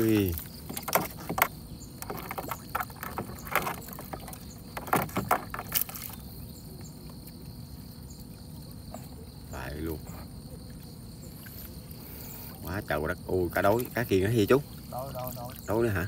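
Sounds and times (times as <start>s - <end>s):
water splashing and dripping: 0.0s - 6.4s, 13.5s - 16.0s
net hauled into boat with knocks: 0.0s - 7.4s.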